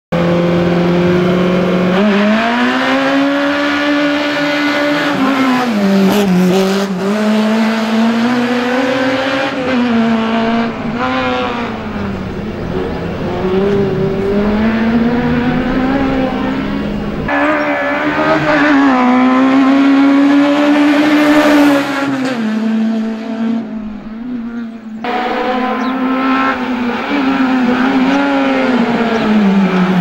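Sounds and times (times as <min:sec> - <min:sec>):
race car engine revving: 0:00.1 - 0:30.0.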